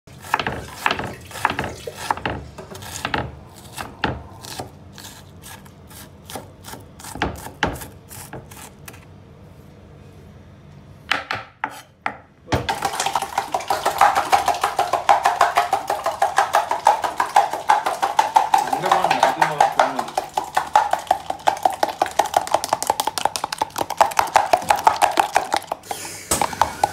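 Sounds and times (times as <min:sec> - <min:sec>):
knife chopping on cutting board: 0:00.2 - 0:09.0, 0:11.1 - 0:12.7.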